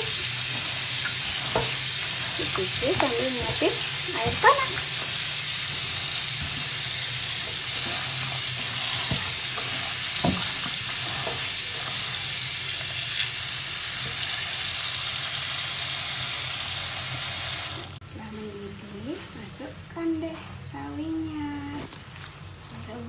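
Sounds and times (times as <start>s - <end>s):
tap water running into steel bowl: 0.0s - 18.0s.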